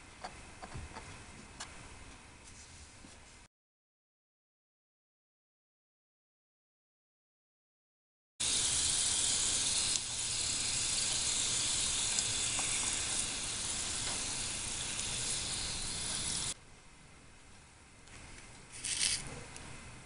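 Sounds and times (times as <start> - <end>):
fries sizzling in hot oil: 8.4 - 16.6.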